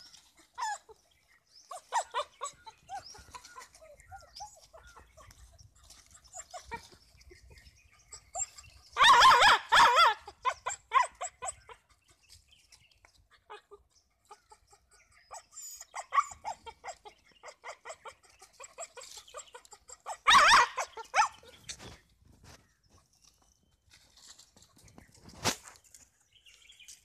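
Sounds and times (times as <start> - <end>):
dog yelping: 0.5 - 1.0, 1.7 - 7.0, 8.1 - 11.9, 13.5 - 21.6.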